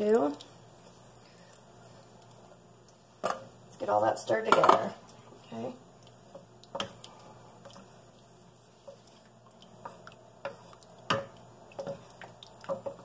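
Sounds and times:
spoon stirring sauce sloshing: 0:05.0 - 0:13.0
spoon knocking against pot: 0:11.1 - 0:12.0.

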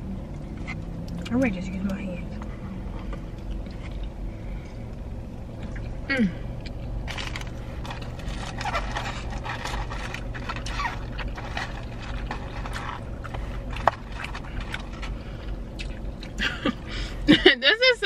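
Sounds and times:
steady low hum: 0:00.0 - 0:18.0
chewing: 0:02.4 - 0:05.0, 0:06.6 - 0:16.4
food packaging rustling: 0:07.0 - 0:15.6.

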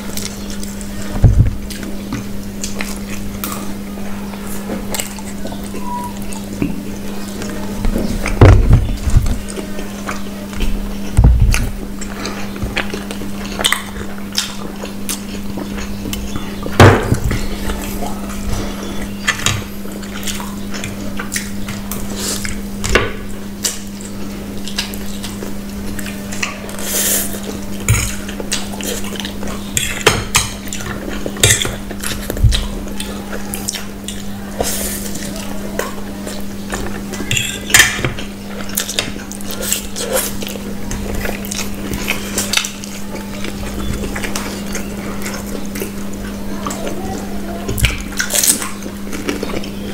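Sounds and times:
people chewing and slurping: 0:00.0 - 0:49.9
forks clinking on plates: 0:37.3 - 0:38.1.

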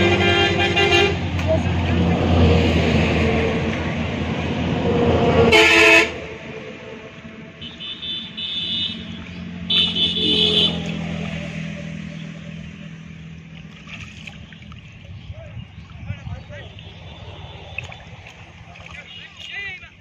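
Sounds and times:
vehicle horn blasts: 0:00.0 - 0:01.2, 0:05.5 - 0:06.2, 0:07.6 - 0:11.3, 0:19.0 - 0:19.8
low engine hum: 0:00.0 - 0:20.0.

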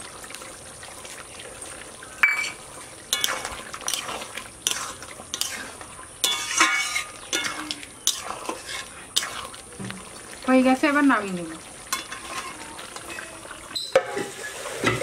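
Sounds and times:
metal spatula scraping pan: 0:02.3 - 0:09.6, 0:11.9 - 0:15.0.

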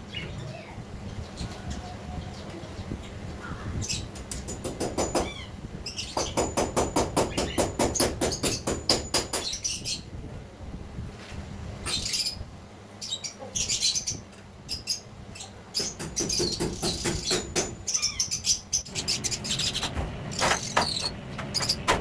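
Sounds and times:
bird chirping: 0:13.0 - 0:21.9.

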